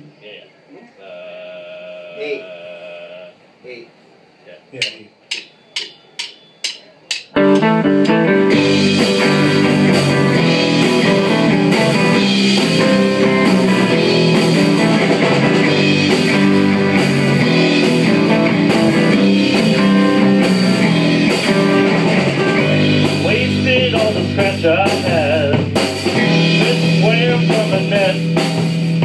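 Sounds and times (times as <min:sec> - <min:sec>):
drumstick count-in clicks: 0:04.8 - 0:08.2
drum kit with cymbals: 0:04.8 - 0:29.0
rock band playing live: 0:05.4 - 0:29.0
electric guitar riff: 0:07.4 - 0:29.0.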